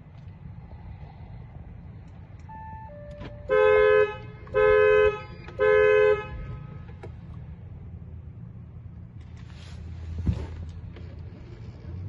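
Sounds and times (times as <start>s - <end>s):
dual-tone car horn honks: 2.5s - 7.1s.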